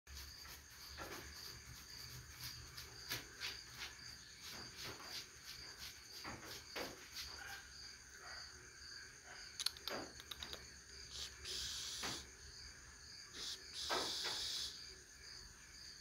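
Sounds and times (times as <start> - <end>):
crickets chirping: 0.1 - 16.0
short sharp noises: 11.1 - 12.3, 13.4 - 14.8.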